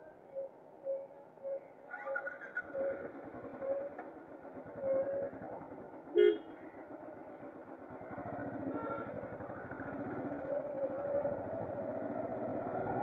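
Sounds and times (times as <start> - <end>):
vehicle engine rough drone: 2.6 - 13.0.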